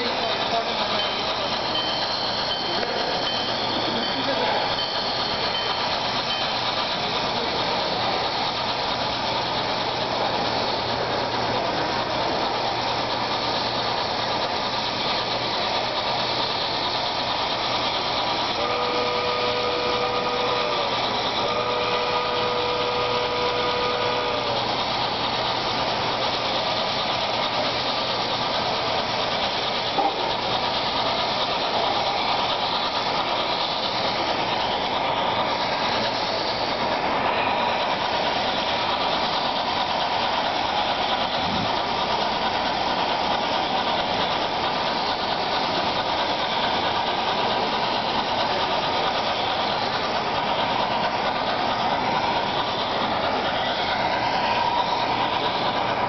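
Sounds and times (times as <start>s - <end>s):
train whistle blasts: 18.6s - 24.6s, 30.0s - 30.4s.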